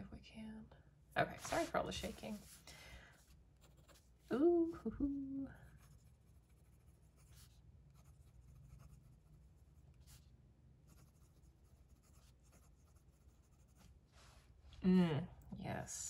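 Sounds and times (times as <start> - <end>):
fountain pen nib scratching paper: 5.8 - 10.2, 10.8 - 13.9.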